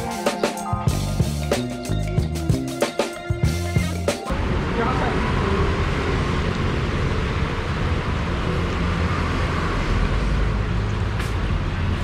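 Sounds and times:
vehicle low rumble: 4.3 - 12.0.

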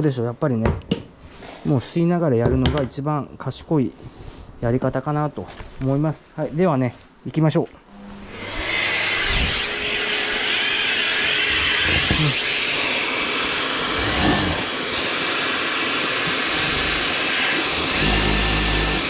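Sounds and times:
drill bursts: 7.9 - 19.0
dust extractor running: 7.9 - 19.0.

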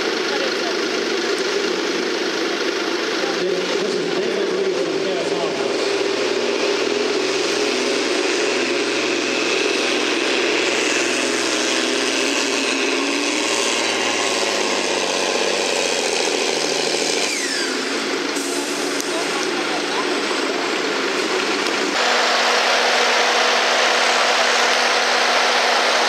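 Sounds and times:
tractor engine under heavy load: 0.0 - 26.0.

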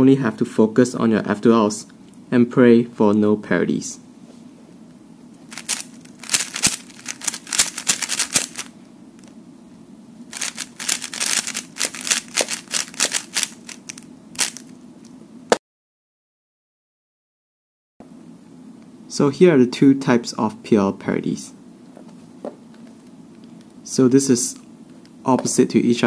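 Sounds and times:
puzzle cube clicking: 5.5 - 8.7, 10.4 - 14.7.

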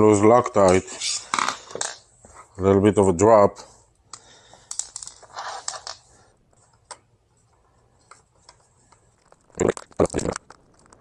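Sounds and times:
small metal parts rustling and scraping: 4.6 - 6.1.

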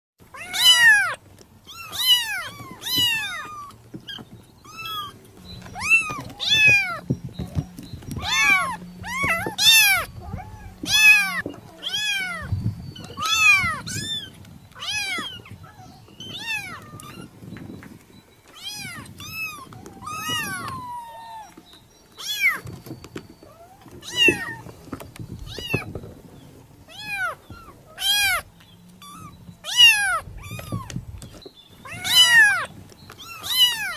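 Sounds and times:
kitten meowing: 0.3 - 7.0, 8.2 - 17.3, 18.6 - 21.6, 23.5 - 24.6, 26.9 - 31.0, 31.8 - 33.9.

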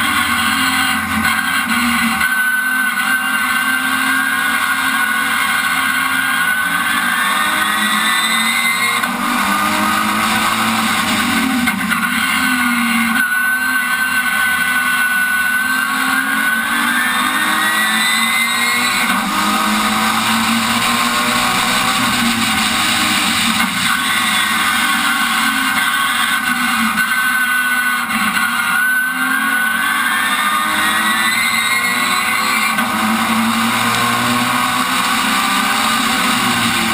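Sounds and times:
race car engine accelerating: 0.0 - 36.9.

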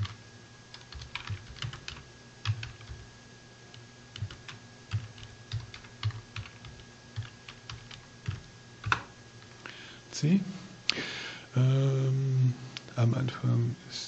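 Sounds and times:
computer keyboard keystrokes: 0.0 - 3.0, 3.7 - 9.1
faint steady hum: 0.0 - 14.0.

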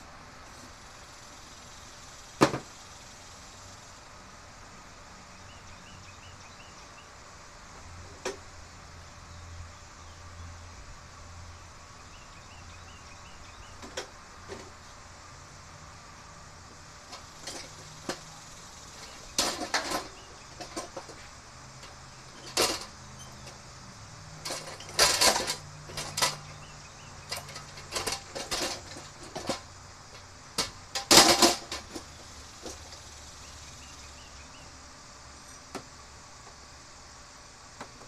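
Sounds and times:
sharp clattering knocks: 2.4 - 2.8, 17.1 - 23.6, 24.4 - 33.1.

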